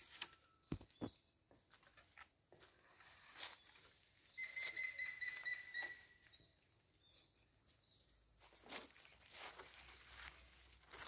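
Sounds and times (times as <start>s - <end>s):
bird whistled trill: 4.3s - 6.6s.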